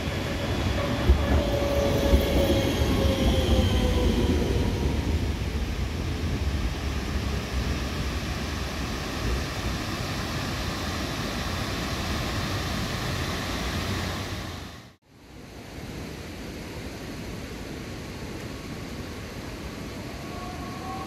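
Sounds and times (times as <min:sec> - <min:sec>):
tram rolling on tracks: 0:00.0 - 0:14.7.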